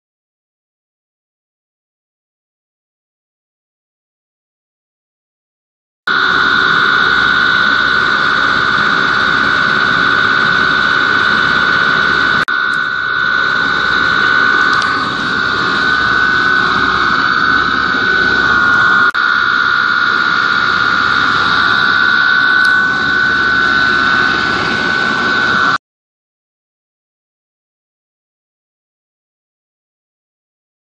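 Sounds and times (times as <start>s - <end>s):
electric motor whining: 6.1s - 25.8s.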